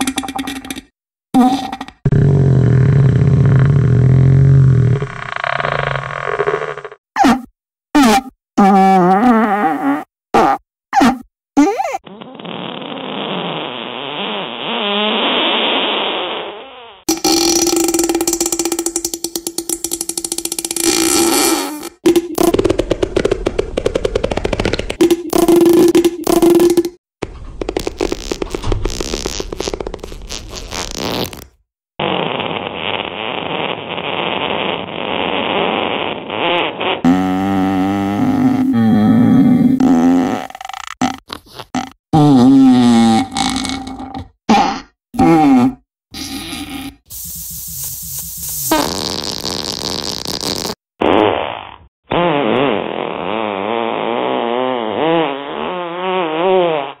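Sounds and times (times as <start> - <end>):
fluttering fart sound: 8.6 - 57.0
long rough hissy fart: 12.2 - 22.6, 27.6 - 38.7, 46.2 - 57.0.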